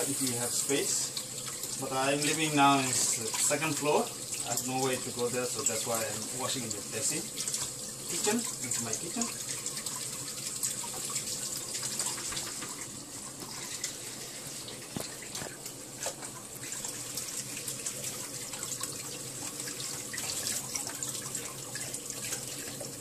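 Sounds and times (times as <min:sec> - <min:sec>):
tap running into metal sink: 0:11.8 - 0:13.9.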